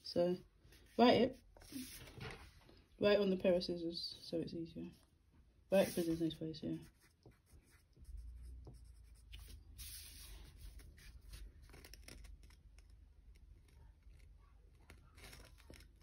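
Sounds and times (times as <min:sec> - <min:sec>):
pencil scratching on paper: 0:05.8 - 0:12.5.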